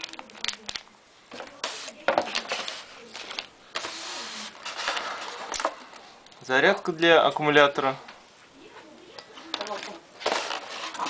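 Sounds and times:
packaging rustling: 0:00.0 - 0:05.8, 0:09.6 - 0:11.0
polystyrene insert scraping: 0:03.8 - 0:05.5.

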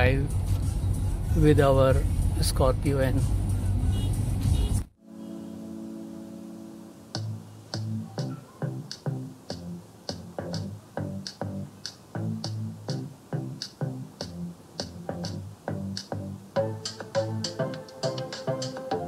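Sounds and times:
held chord: 0:05.0 - 0:09.8
music with steady beat: 0:07.1 - 0:19.0.

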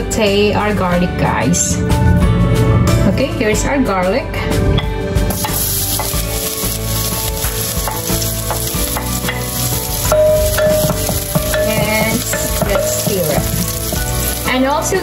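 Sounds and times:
garlic sizzling in oil: 0:05.3 - 0:15.0
wooden spoon stirring: 0:05.3 - 0:15.0.

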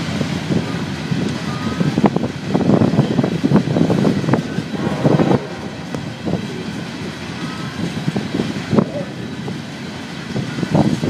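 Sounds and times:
train wheels rumbling on rail: 0:00.0 - 0:11.0
train cars clanking: 0:03.6 - 0:10.0.

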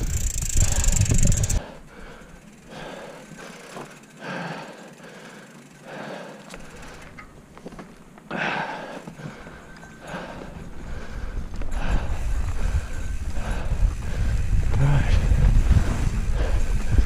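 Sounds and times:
wind on microphone: 0:00.0 - 0:01.6, 0:11.2 - 0:17.0
bike rattling over bumps: 0:00.0 - 0:08.2, 0:09.2 - 0:17.0
bike tyres crunching on dirt: 0:02.4 - 0:04.2, 0:06.4 - 0:08.4, 0:09.2 - 0:17.0.

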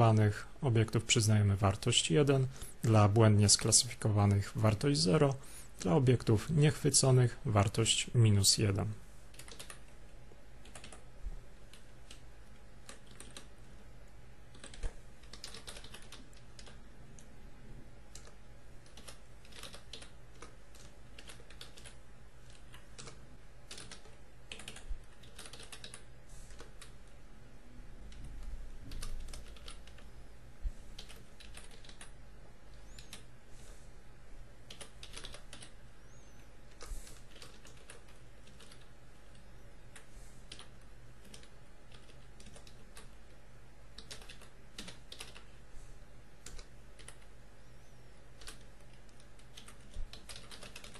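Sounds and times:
steady low hum: 0:00.0 - 0:50.9
keyboard typing clicks: 0:09.3 - 0:09.9, 0:10.6 - 0:11.1, 0:12.8 - 0:13.5, 0:14.5 - 0:17.3, 0:18.1 - 0:27.1, 0:28.1 - 0:30.1, 0:31.0 - 0:33.3, 0:34.7 - 0:35.8, 0:36.4 - 0:43.2, 0:44.0 - 0:45.5, 0:46.4 - 0:47.3, 0:48.4 - 0:50.9.

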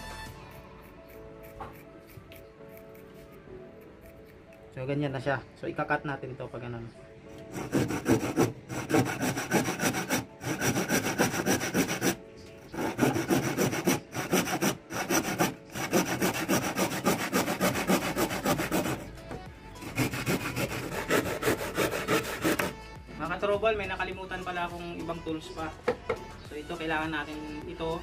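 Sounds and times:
hand saw cutting wood: 0:07.4 - 0:19.1, 0:19.8 - 0:22.8.

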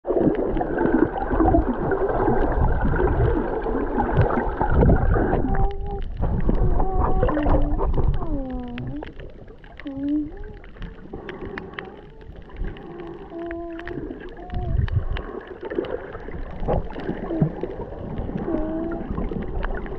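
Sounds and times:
water churning underwater: 0:00.0 - 0:19.9
small clicks: 0:05.6 - 0:19.9.

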